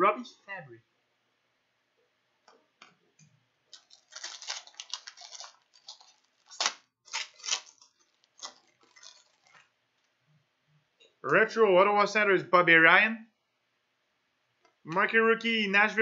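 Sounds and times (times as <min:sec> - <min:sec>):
wrapper tearing and crinkling: 0:03.7 - 0:09.8.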